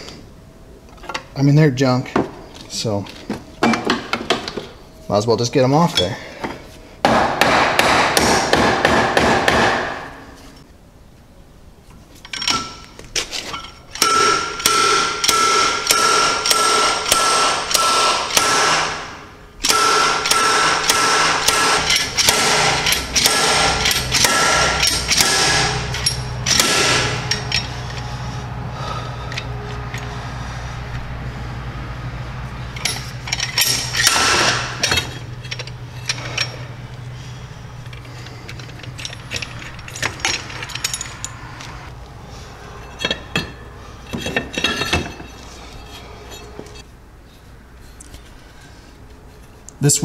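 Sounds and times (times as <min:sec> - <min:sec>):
steady low hum: 0:00.0 - 0:50.0
impact wrench hammering: 0:07.0 - 0:10.2, 0:14.0 - 0:28.2, 0:32.7 - 0:36.8
metal clinks and knocks: 0:12.2 - 0:17.2, 0:19.6 - 0:28.4, 0:29.2 - 0:30.2, 0:32.4 - 0:46.9.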